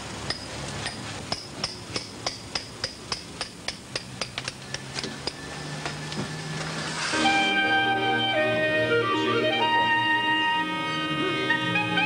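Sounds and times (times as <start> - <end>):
hammer striking steel chisel: 0.3 - 6.2.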